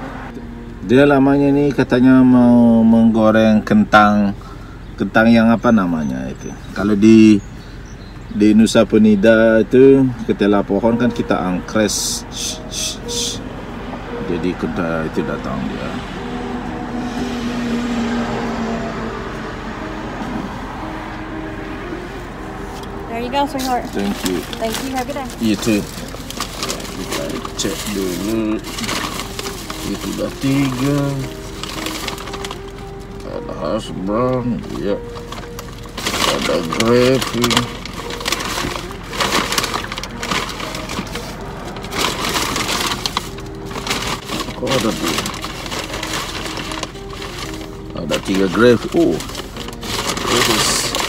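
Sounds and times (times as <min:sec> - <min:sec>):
car idling hum: 0:00.0 - 0:51.0
takeout bag rustling and crinkling: 0:23.5 - 0:33.2, 0:34.5 - 0:51.0.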